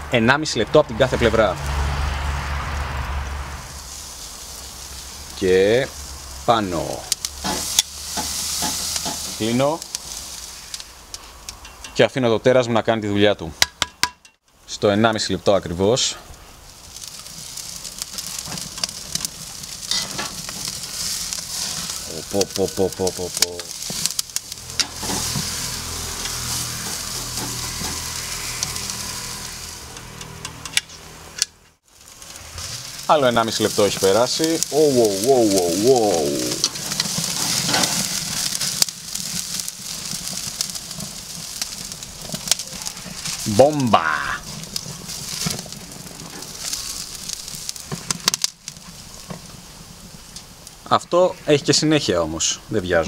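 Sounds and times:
charcoal crackling: 0:00.0 - 0:53.0
steaks sizzling on a grill: 0:01.6 - 0:11.6, 0:15.7 - 0:31.1, 0:31.8 - 0:53.0
metal tongs turning steak: 0:07.1 - 0:12.0, 0:17.0 - 0:31.5, 0:32.3 - 0:47.3.

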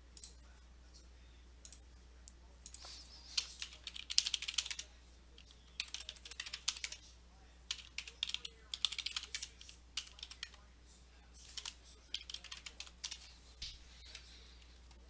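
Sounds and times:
typing on computer keyboard: 0:03.4 - 0:07.0, 0:07.7 - 0:10.6, 0:11.5 - 0:13.2.

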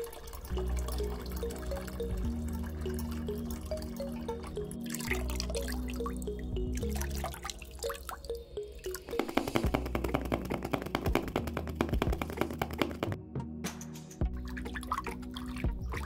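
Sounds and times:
water pouring: 0:00.0 - 0:10.8, 0:14.2 - 0:16.0
background music: 0:00.0 - 0:16.0.

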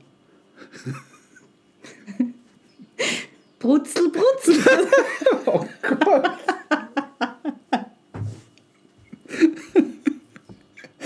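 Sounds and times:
laughter in rapid pulses: 0:00.6 - 0:02.5, 0:04.5 - 0:08.0, 0:09.1 - 0:11.0.

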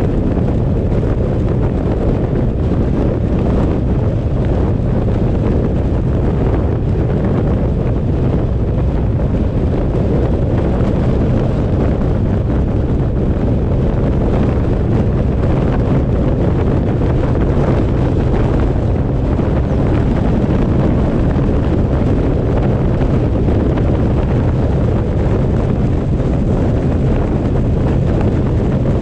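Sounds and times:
low road rumble: 0:00.0 - 0:29.0
wind buffeting microphone: 0:00.0 - 0:29.0.

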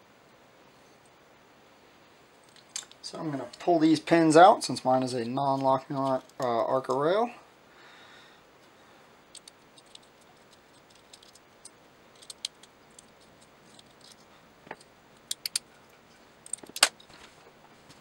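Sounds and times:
small metal clicks and ticks: 0:02.4 - 0:03.7, 0:09.3 - 0:17.1.

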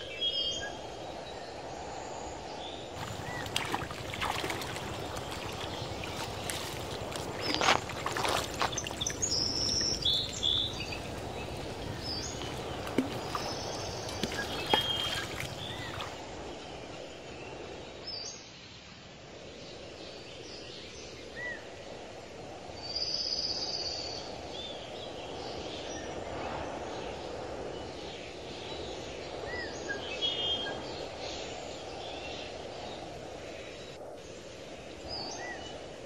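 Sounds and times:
birds chirping: 0:03.0 - 0:16.2.

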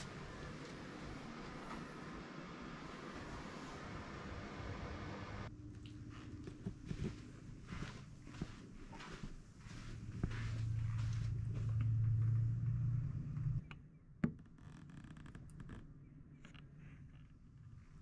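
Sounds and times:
steady low hum: 0:00.0 - 0:13.8.

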